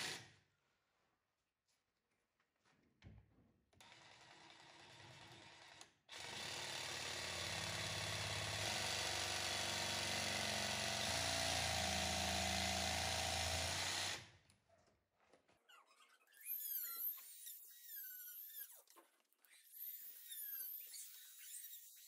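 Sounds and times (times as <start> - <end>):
jigsaw cutting wood: 3.8 - 14.3.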